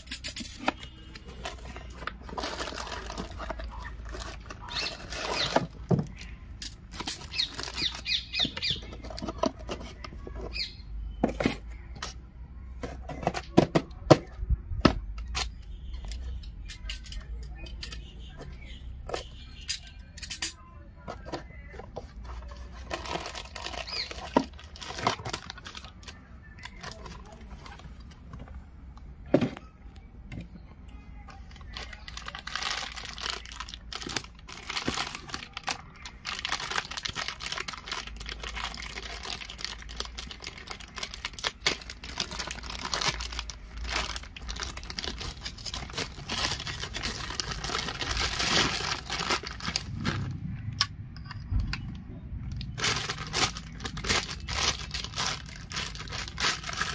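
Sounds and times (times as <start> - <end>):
plastic bags crinkling: 0.0 - 10.4, 22.0 - 28.1, 31.3 - 50.4, 52.5 - 56.9.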